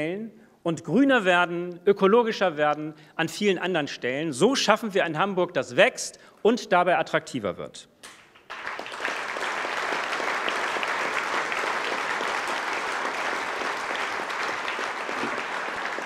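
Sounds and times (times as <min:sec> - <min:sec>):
large audience applauding: 0:08.4 - 0:16.0.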